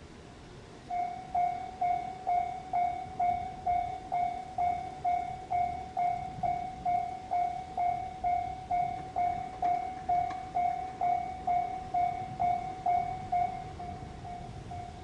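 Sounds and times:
level-crossing alarm clanging: 0.9 - 15.0.

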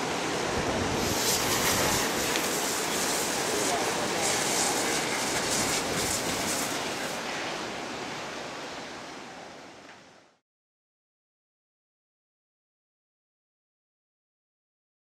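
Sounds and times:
rushing wind: 0.0 - 10.2
sea noise: 0.0 - 10.4.

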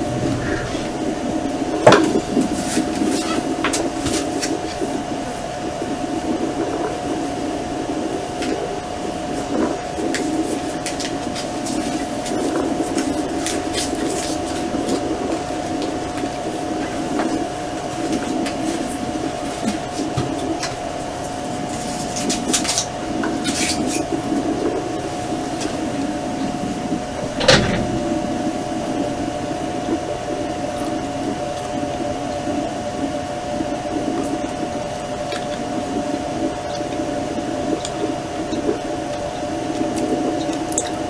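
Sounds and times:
bees buzzing: 0.0 - 2.3.

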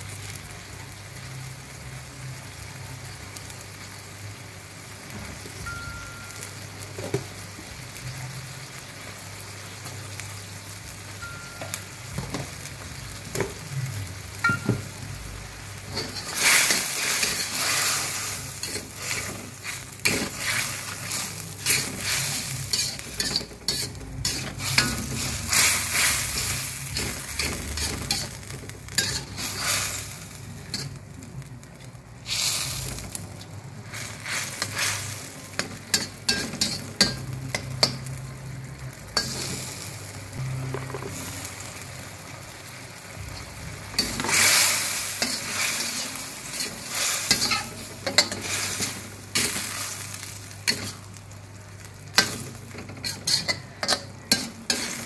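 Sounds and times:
stir-fry sizzling: 0.0 - 55.0
metal spatula scraping a wok: 15.9 - 31.0, 33.8 - 38.1, 39.2 - 39.9, 43.4 - 51.1, 52.2 - 55.0.

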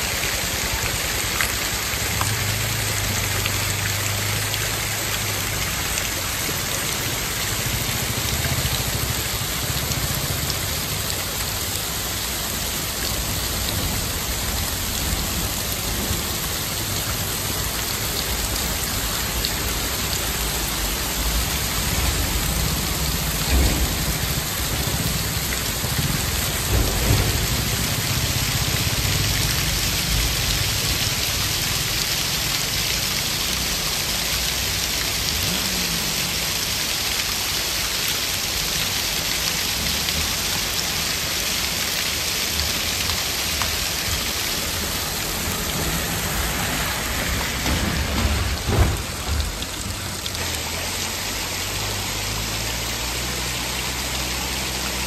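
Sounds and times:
water pouring down rock face: 0.0 - 55.0
passing motorcycles rumbling: 2.1 - 11.7, 33.2 - 37.0.

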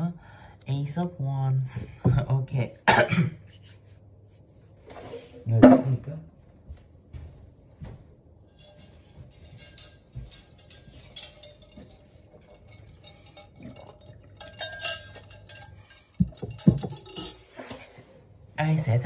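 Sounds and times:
light clinking and tinkling: 8.5 - 17.8.

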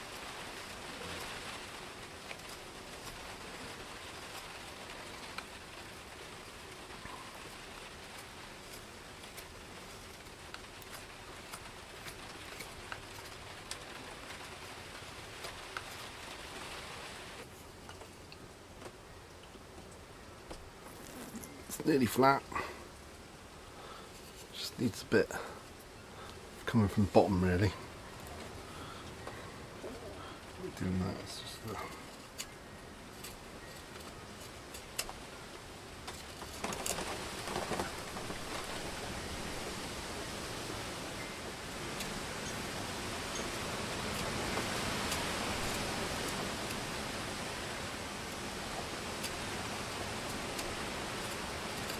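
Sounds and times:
steady rain hiss: 0.0 - 51.9
raindrop ticks: 0.1 - 16.8, 33.2 - 39.8.

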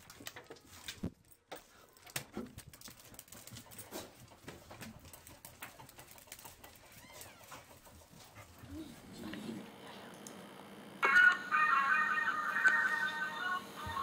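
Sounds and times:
dog claws clicking on tile floor: 0.0 - 7.9.

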